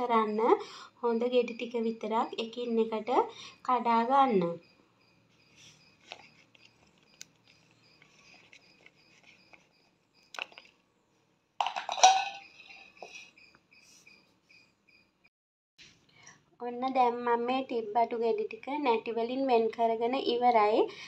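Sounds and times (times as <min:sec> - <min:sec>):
rustling crackle: 0:05.4 - 0:10.8.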